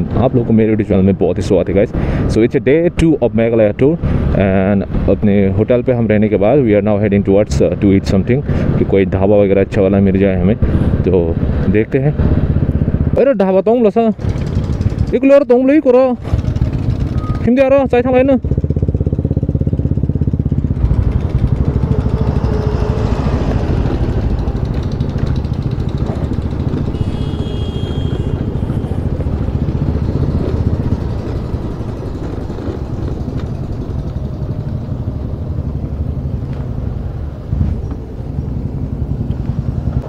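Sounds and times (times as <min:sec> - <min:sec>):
scooter engine running: 0:14.2 - 0:15.2, 0:16.2 - 0:40.0
wind rumbling on microphone: 0:19.1 - 0:40.0.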